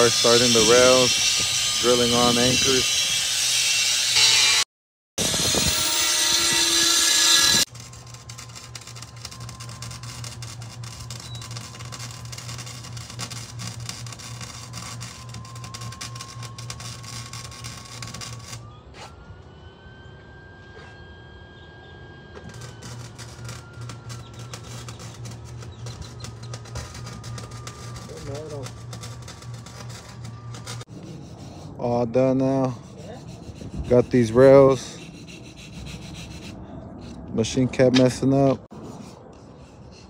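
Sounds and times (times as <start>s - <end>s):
electric arc welding crackle: 0.0s - 4.6s, 5.2s - 18.6s, 22.4s - 30.9s
power drill drilling: 5.2s - 7.7s.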